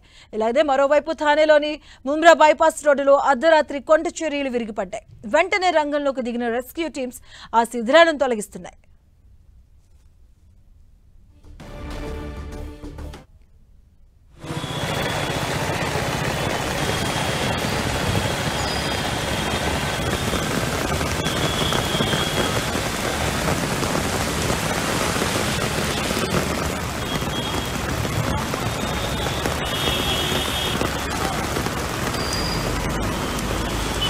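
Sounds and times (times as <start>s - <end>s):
heavy rain pouring: 14.4s - 34.0s
road traffic: 14.4s - 34.0s.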